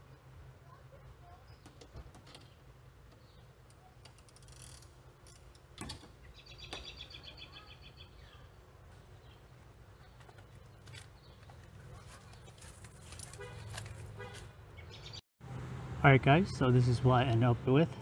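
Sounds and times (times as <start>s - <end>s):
bird trill: 6.2s - 8.5s.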